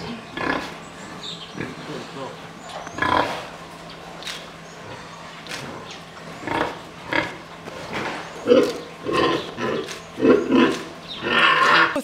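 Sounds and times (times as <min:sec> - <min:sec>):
pig grunting: 0:00.0 - 0:03.7, 0:04.4 - 0:12.0.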